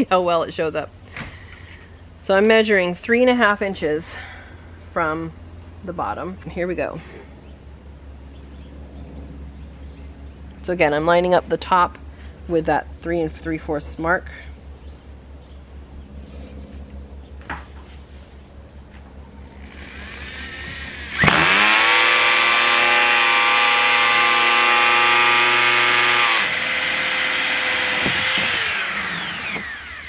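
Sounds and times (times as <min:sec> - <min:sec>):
electric drill whining: 0:19.6 - 0:30.0
hole saw cutting plastic: 0:19.7 - 0:30.0.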